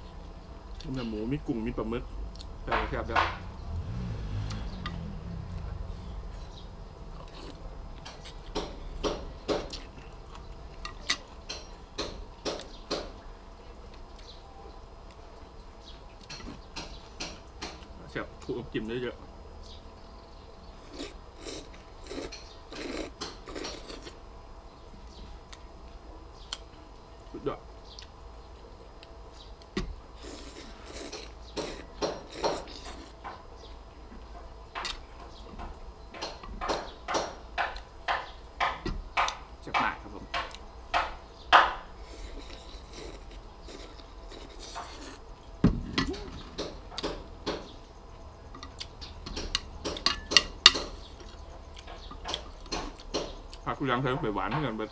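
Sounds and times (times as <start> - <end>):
mouth eating sound: 20.8 - 24.2, 30.2 - 33.2, 42.0 - 45.3
noodles being slurped: 20.8 - 24.2, 30.2 - 33.2, 42.0 - 45.2.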